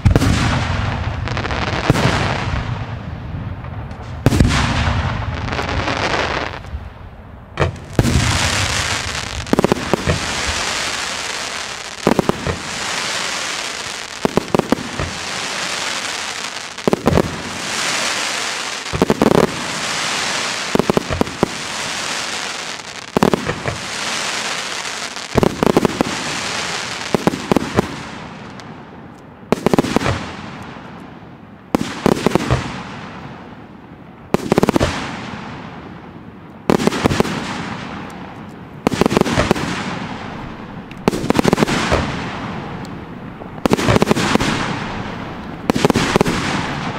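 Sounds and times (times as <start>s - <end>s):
firework shells bursting: 7.6s - 27.9s
fireworks hissing: 7.8s - 27.6s.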